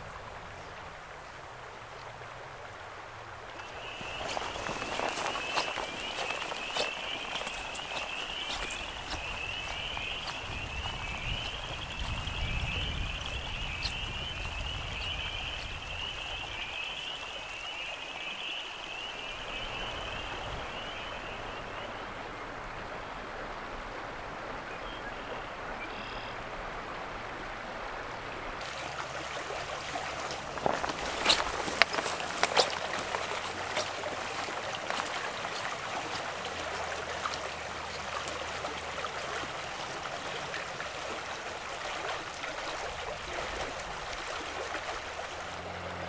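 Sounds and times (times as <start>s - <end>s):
creek rushing: 0.0s - 46.0s
frogs trilling: 3.6s - 22.0s, 28.8s - 40.8s.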